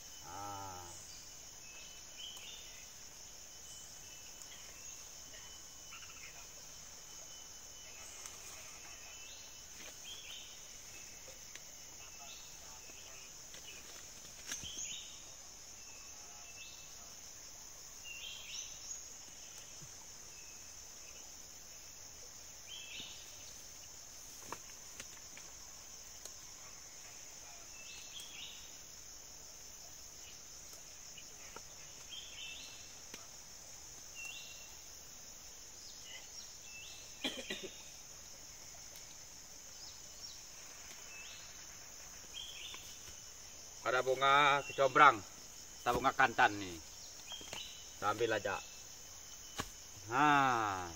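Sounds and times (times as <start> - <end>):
insects droning: 0.0 - 50.9
short insect chirps: 0.0 - 50.9.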